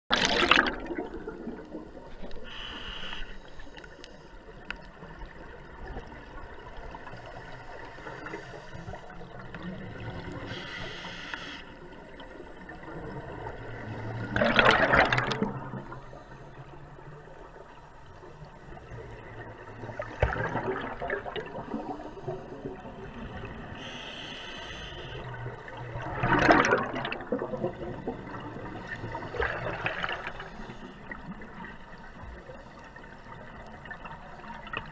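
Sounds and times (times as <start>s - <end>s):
exhaled bubbles bursting: 0.1s - 2.1s, 14.2s - 15.9s, 20.0s - 22.0s, 25.8s - 30.4s
regulator inhalation hiss: 2.4s - 3.8s, 10.5s - 11.7s, 23.7s - 25.3s.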